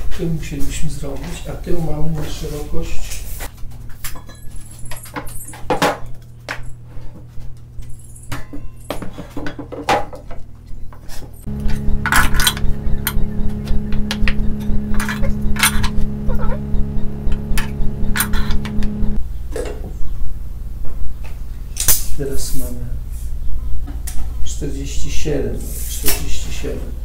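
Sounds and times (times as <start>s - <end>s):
steady machine hum: 11.4s - 25.8s.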